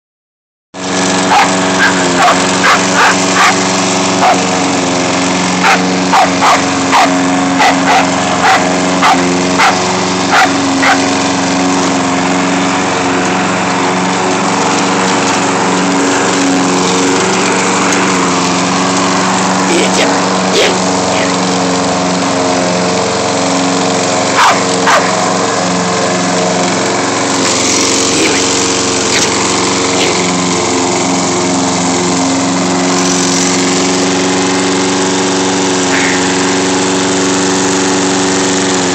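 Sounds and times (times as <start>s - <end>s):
lawnmower engine running: 0.8s - 38.9s
dog barking: 1.3s - 3.6s, 4.2s - 4.4s, 5.6s - 11.0s, 24.4s - 25.2s, 29.1s - 29.4s.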